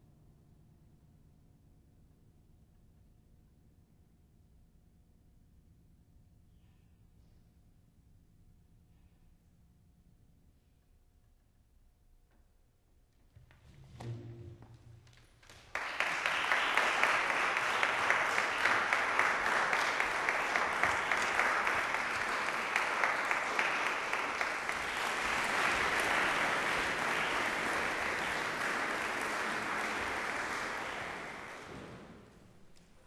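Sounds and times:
audience applauding: 15.4s - 32.8s.

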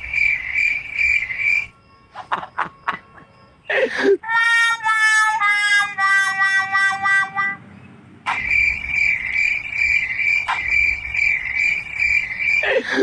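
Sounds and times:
pulsing chirring call: 8.3s - 13.0s.

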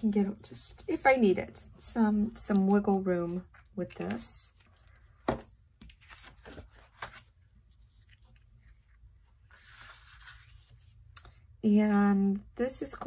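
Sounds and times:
paper rustling and sliding: 5.8s - 11.0s
soft scraping rustle: 6.0s - 11.0s.

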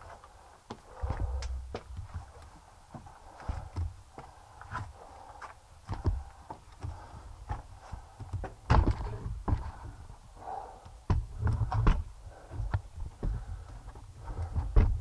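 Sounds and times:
footsteps on stone and dirt: 0.0s - 10.1s.

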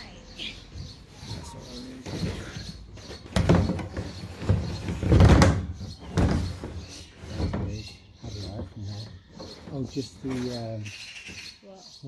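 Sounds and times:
knocks and thuds of handling: 2.0s - 9.7s.

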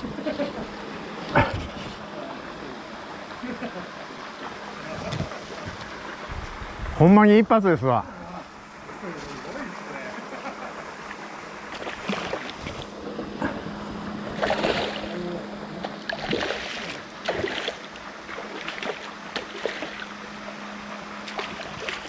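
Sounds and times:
steady low hum: 0.0s - 22.0s
fish splashing at surface: 11.7s - 12.9s, 14.4s - 15.2s, 16.0s - 20.1s.

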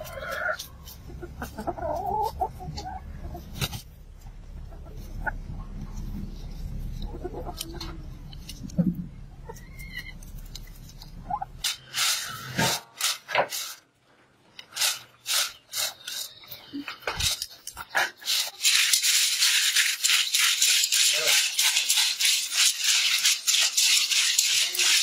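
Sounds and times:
hens clucking: 0.0s - 11.8s
low background rumble: 0.7s - 11.6s
beans rattling on metal tray: 17.2s - 25.0s.

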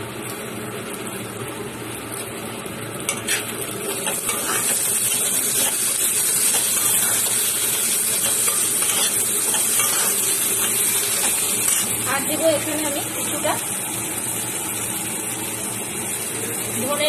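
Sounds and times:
vegetables sizzling in oil: 0.0s - 17.0s
metal spatula scraping wok: 3.1s - 12.0s.

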